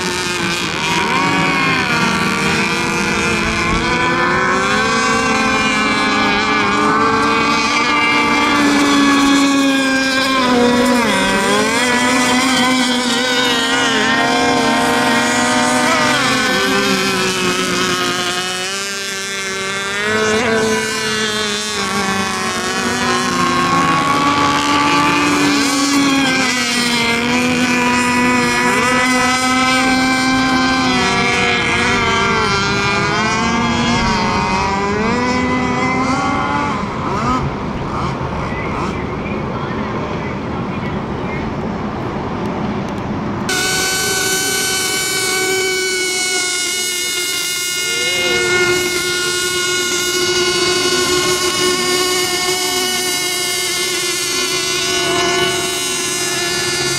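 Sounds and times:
racing boat engines whining: 0.0 - 56.9.

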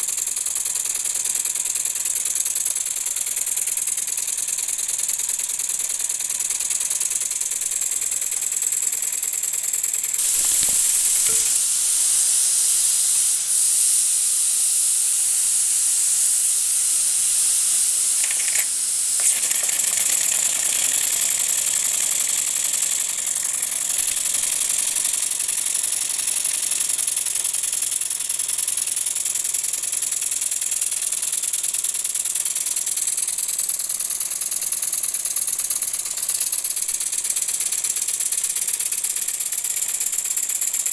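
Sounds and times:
toy steam engine whirring: 0.0 - 40.9
steam hissing: 9.9 - 40.8.

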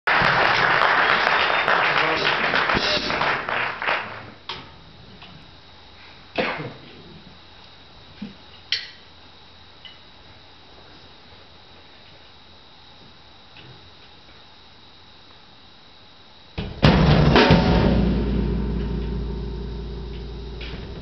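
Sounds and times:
audience clapping: 0.0 - 4.4
audience voices: 0.1 - 4.4.

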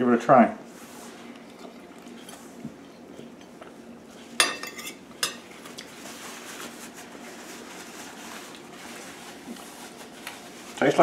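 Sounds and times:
cutlery clinking on a plate: 4.4 - 5.4
cutlery scraping a plate: 4.4 - 5.4.

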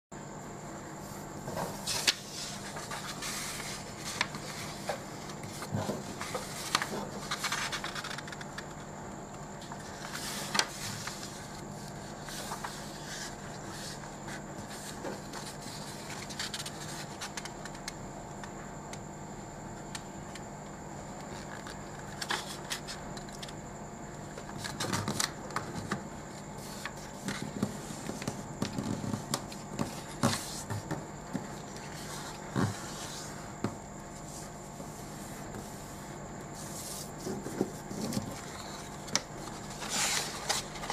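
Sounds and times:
faint steady hum: 0.1 - 40.9
paper rustling and sliding: 1.4 - 8.7, 9.6 - 17.5, 26.6 - 40.9.

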